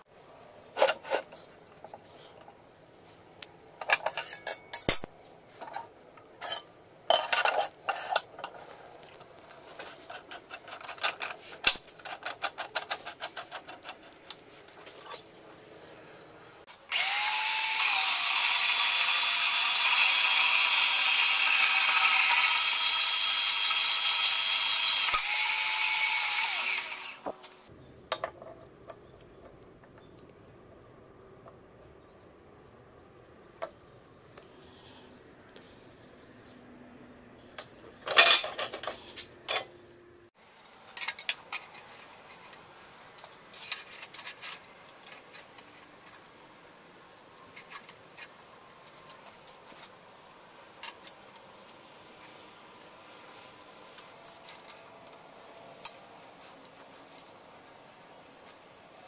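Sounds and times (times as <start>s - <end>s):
power saw cutting steel: 16.7s - 27.3s.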